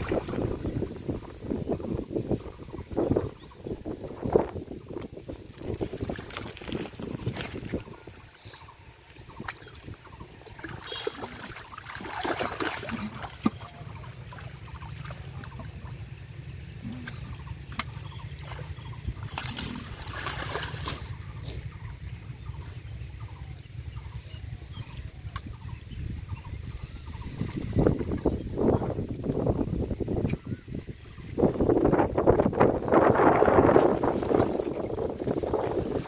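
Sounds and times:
hands splashing in muddy water: 9.4s - 15.8s, 16.9s - 21.7s
steady low rumble: 13.7s - 30.2s.

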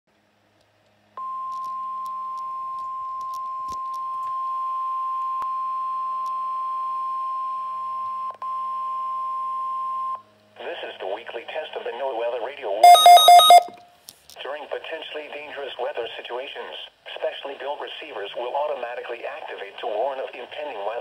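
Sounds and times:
steady alarm tone from speaker: 12.8s - 13.8s.

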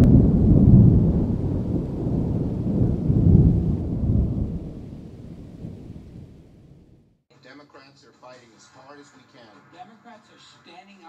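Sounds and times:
deep rolling rumble: 0.0s - 7.2s.

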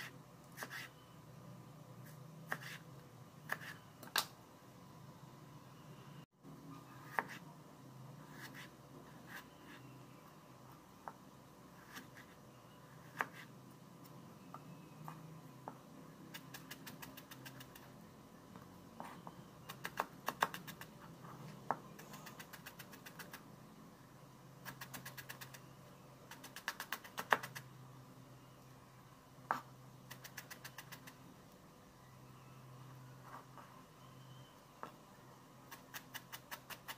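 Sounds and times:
low steady hum: 27.6s - 30.2s.

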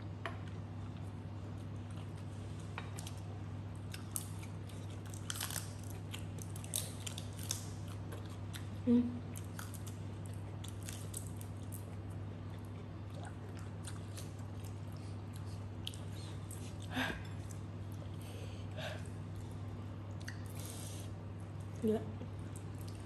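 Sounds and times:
steady low hum: 0.0s - 23.0s
person chewing crab: 0.8s - 8.8s.

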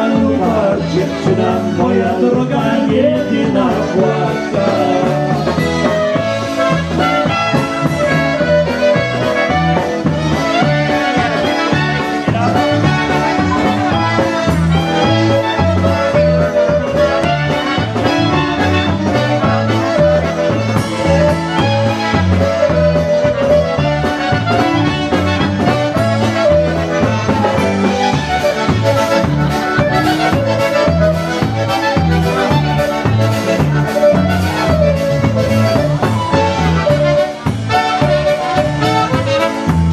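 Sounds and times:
polka band playing: 0.0s - 39.9s.

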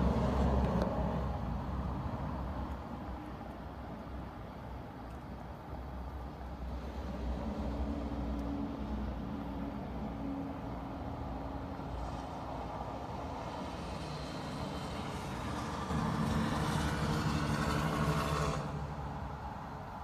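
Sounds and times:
traffic hum: 0.0s - 20.0s
engine-like sound: 13.0s - 20.0s.

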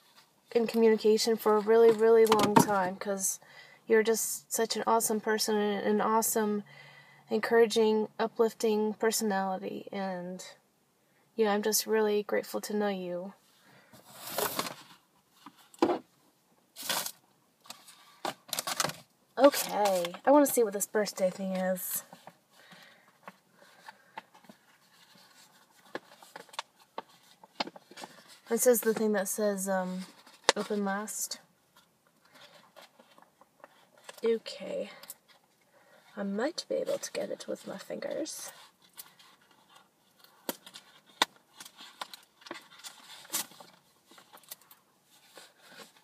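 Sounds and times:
rustling scrape of packaging: 14.0s - 15.8s, 16.8s - 20.3s.

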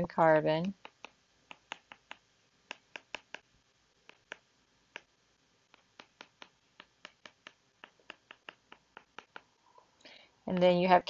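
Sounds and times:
stylus tapping on glass screen: 0.6s - 3.5s, 4.1s - 5.1s, 5.7s - 9.5s.

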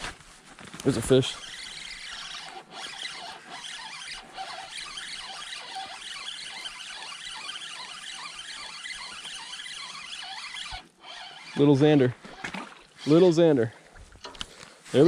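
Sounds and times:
fishing reel being cranked: 0.8s - 13.4s.

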